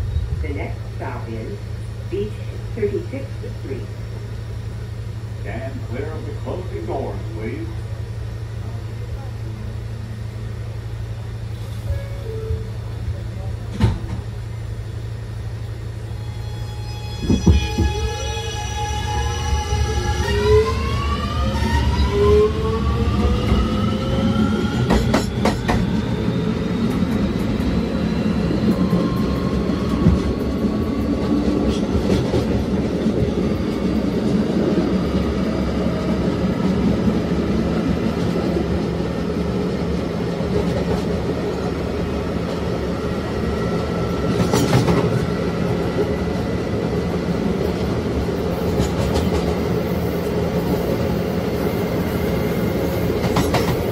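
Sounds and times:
subway train inverter whine: 0.0s - 53.9s
wheels rumbling on rail: 0.0s - 53.9s.

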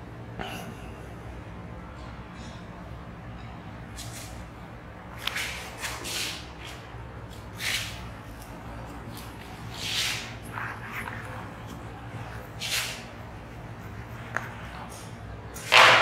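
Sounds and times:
eraser swishing on whiteboard: 7.6s - 8.0s, 9.6s - 11.8s, 12.5s - 13.1s.

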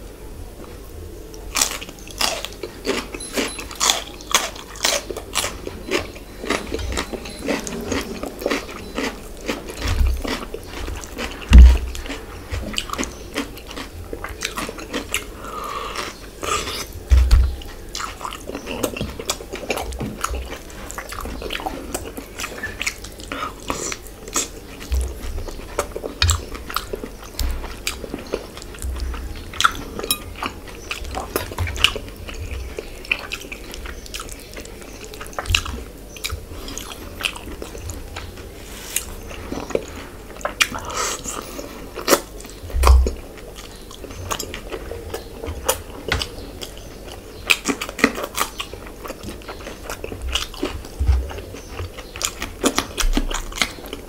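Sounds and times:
man chewing: 1.3s - 54.0s
food crunch: 1.4s - 16.9s.

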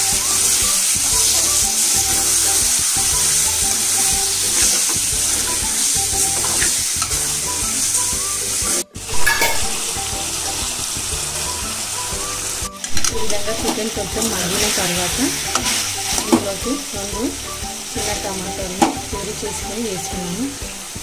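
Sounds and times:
chicken sizzling in hot oil: 0.0s - 21.0s
metal spoon scraping pan: 9.1s - 9.9s.

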